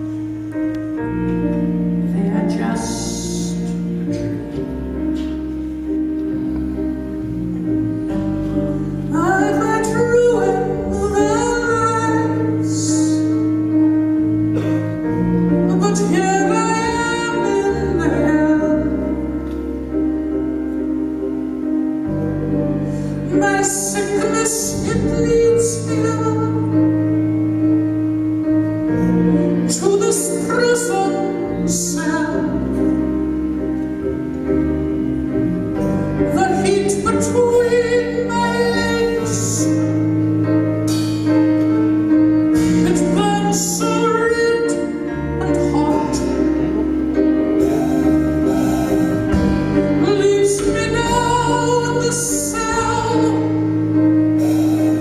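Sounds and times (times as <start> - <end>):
double bass: 0.0 - 55.0
piano: 0.0 - 55.0
drums: 40.7 - 41.8, 42.4 - 44.0, 47.6 - 51.4.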